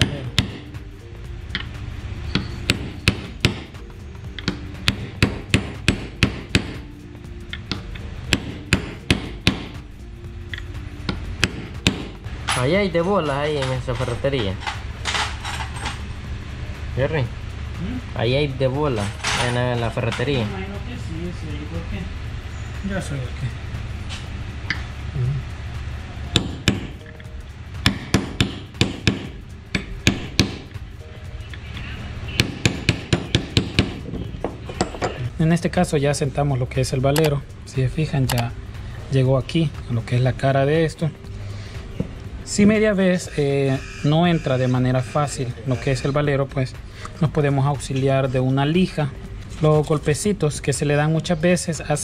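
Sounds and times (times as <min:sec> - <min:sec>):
hammer tapping on metal: 0:00.0 - 0:00.8, 0:02.3 - 0:06.9, 0:07.5 - 0:09.8, 0:10.5 - 0:12.2, 0:26.3 - 0:27.2, 0:27.8 - 0:30.7, 0:32.3 - 0:35.3.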